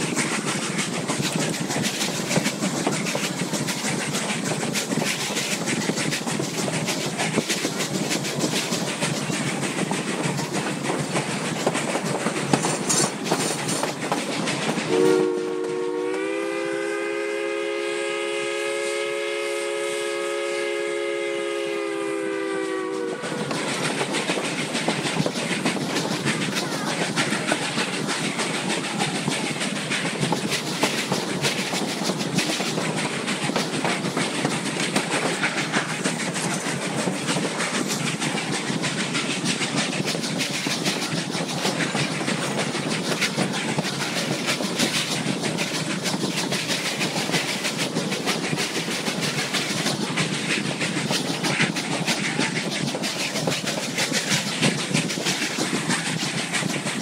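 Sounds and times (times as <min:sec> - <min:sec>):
train coaches clattering on rails: 0:00.0 - 0:16.4, 0:22.2 - 0:57.0
steam locomotive chime whistle: 0:14.9 - 0:23.3.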